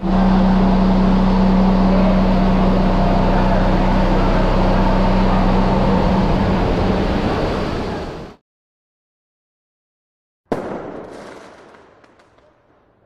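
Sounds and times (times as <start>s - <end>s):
loud machinery hum: 0.0s - 8.4s.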